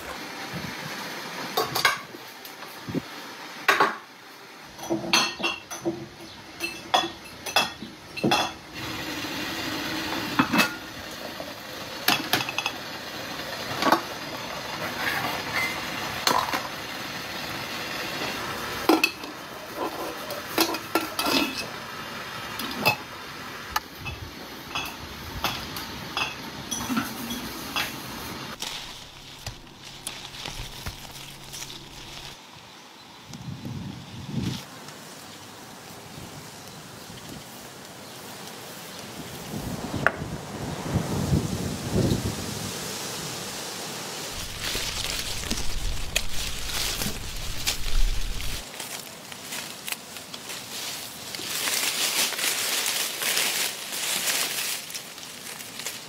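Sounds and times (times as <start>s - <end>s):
metal cookware clinking: 6.6s - 8.6s
steady hiss: 7.3s - 56.0s.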